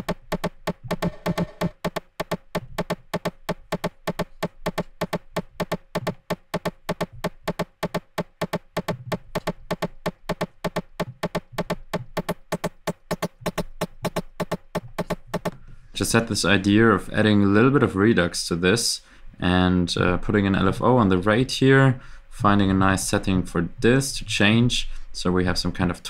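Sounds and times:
clicky synth techno pattern: 0.0 - 15.6.

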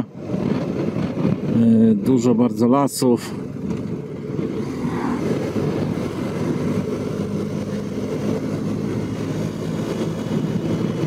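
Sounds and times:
riding wind rushing: 0.0 - 11.0
motorcycle engine cruising: 3.3 - 11.0.

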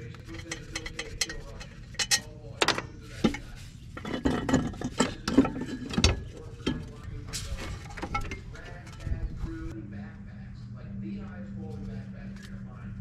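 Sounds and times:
metal parts and tools rattling: 0.0 - 9.7.

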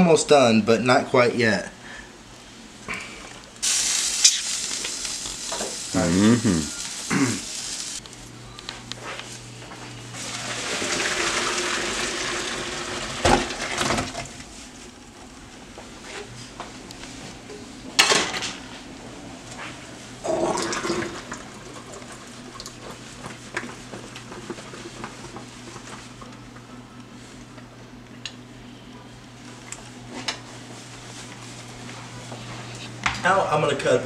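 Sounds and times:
water pouring into colander: 10.2 - 13.9.

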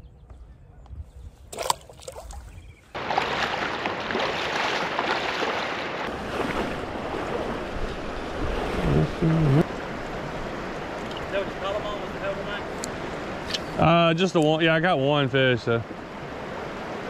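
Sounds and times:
person wading through river water: 1.5 - 11.1.

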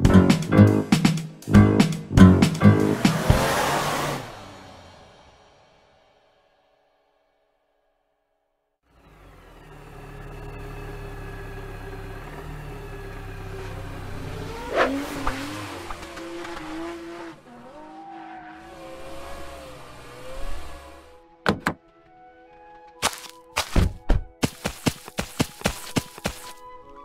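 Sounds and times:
car engine accelerating: 1.5 - 5.8, 8.9 - 21.4.

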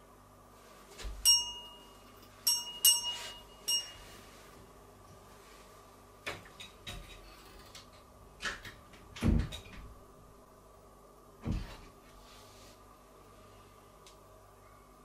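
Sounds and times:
knocks and bumps of a door: 8.5 - 9.9, 11.4 - 11.8.

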